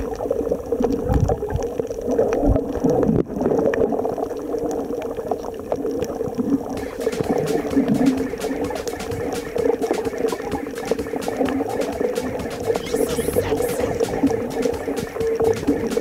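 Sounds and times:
underwater sloshing and bubbling: 0.0s - 10.8s.

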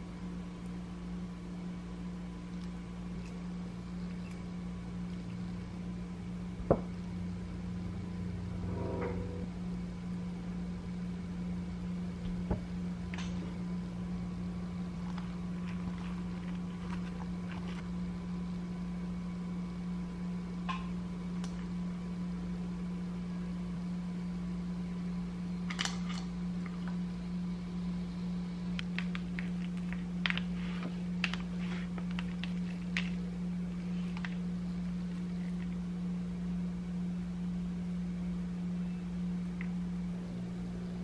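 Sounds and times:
low motor hum: 0.0s - 25.6s
hands handling food clicks: 28.7s - 30.6s, 31.2s - 35.8s.

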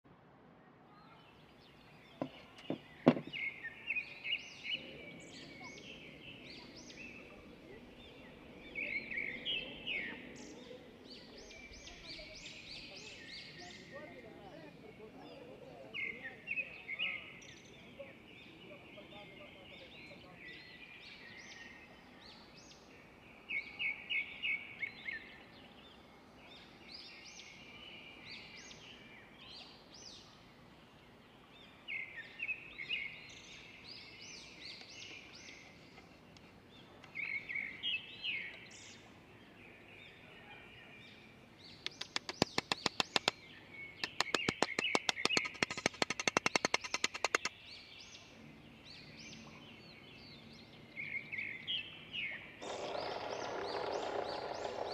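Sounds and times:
small birds chirping and singing: 0.6s - 54.9s
fast run of sharp clicks: 41.8s - 43.4s, 44.0s - 47.5s, 52.6s - 54.9s.

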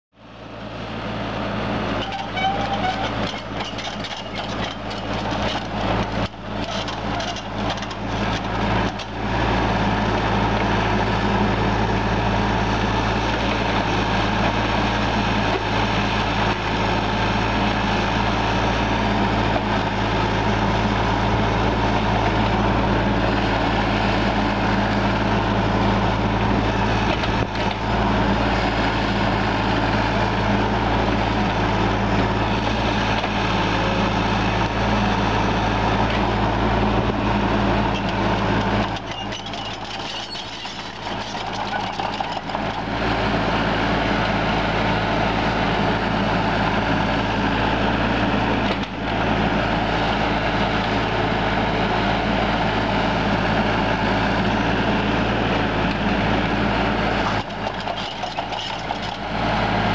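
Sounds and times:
excavator diesel engine running: 0.2s - 59.9s.

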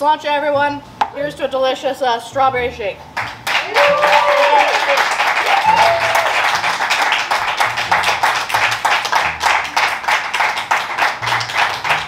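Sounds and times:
group clapping in rhythm: 3.1s - 12.0s.

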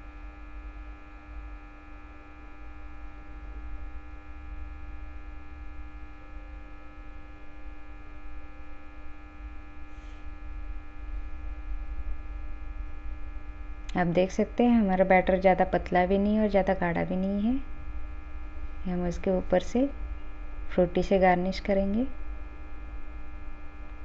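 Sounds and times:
electrical mains hum: 0.0s - 24.0s
faint scratch: 9.8s - 10.4s
low rumble: 10.3s - 14.2s.

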